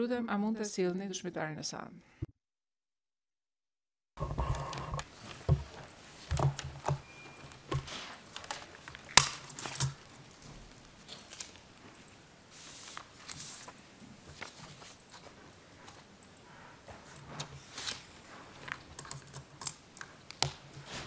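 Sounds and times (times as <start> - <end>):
knocks and taps on desk equipment: 4.2 - 7.9.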